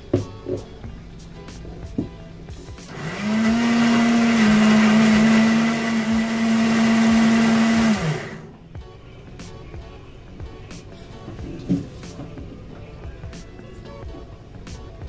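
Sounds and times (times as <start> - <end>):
blender motor whine: 2.9 - 8.5.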